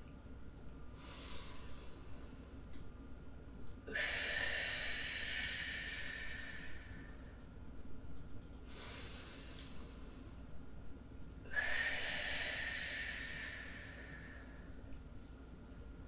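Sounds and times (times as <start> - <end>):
person breathing deeply: 0.9 - 2.6, 3.9 - 7.4, 8.7 - 10.4, 11.4 - 14.8.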